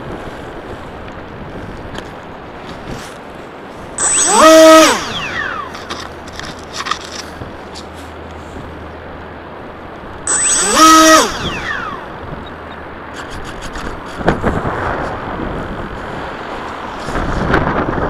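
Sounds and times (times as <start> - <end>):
wind noise on microphone: 0.0 - 8.9, 10.0 - 18.0
electric motor and propeller revving: 4.0 - 7.3, 10.3 - 12.6.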